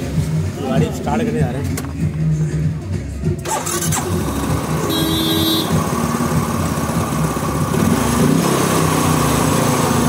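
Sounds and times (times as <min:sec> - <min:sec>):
scooter engine idling: 0:03.4 - 0:08.1.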